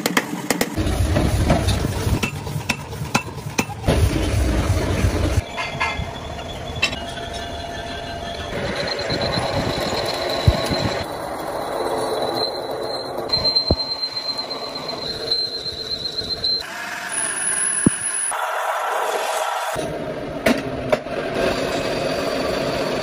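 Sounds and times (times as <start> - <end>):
lathe cutting tool squealing: 5.4 - 11.1, 12.0 - 19.8.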